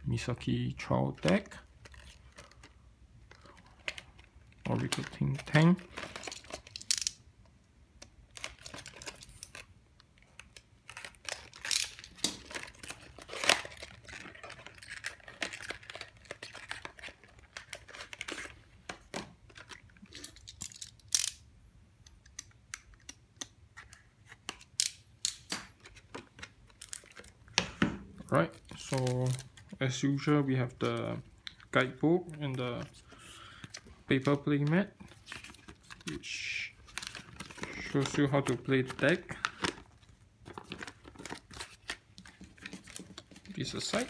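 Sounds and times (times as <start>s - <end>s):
plastic wrap crinkling: 0.8s - 6.9s, 8.3s - 18.8s, 25.7s - 44.0s
packaging tearing: 10.4s - 18.6s, 28.3s - 30.2s, 32.8s - 44.0s.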